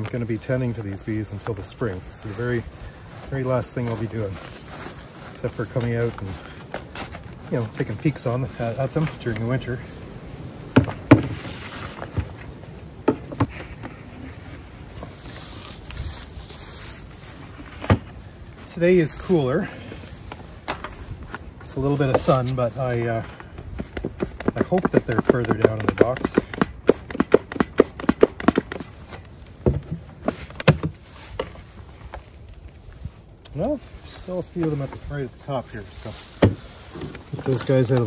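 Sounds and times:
soft rustling of suit: 0:00.0 - 0:10.4, 0:13.4 - 0:23.3
tool scraping and tapping on wood: 0:23.3 - 0:32.2
sharp knocks: 0:23.8 - 0:28.9.

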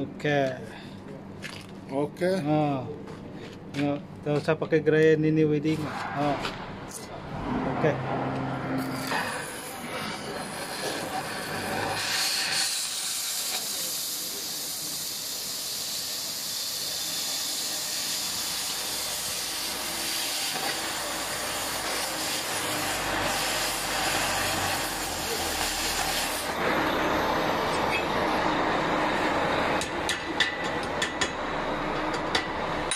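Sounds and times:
cutting torch flame hissing: 0:08.8 - 0:28.4.

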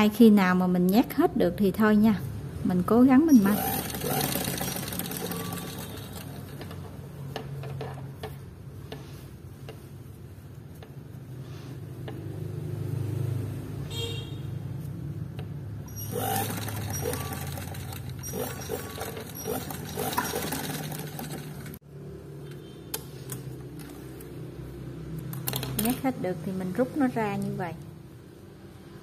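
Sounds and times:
sewing machine running: 0:03.3 - 0:06.6, 0:15.9 - 0:21.8.

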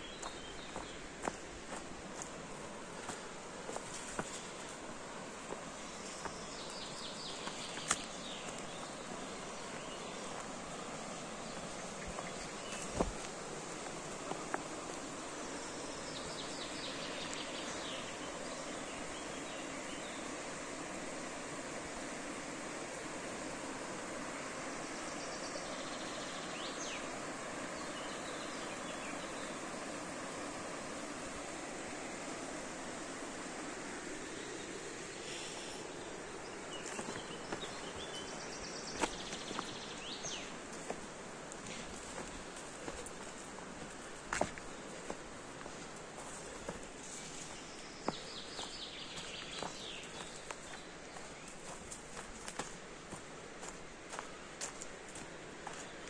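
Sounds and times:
faint birdsong: 0:00.0 - 0:56.0
river rushing over rocks: 0:00.0 - 0:56.0
steady outdoor hiss: 0:00.0 - 0:56.0
footsteps on a path: 0:00.1 - 0:17.9, 0:36.5 - 0:56.0.

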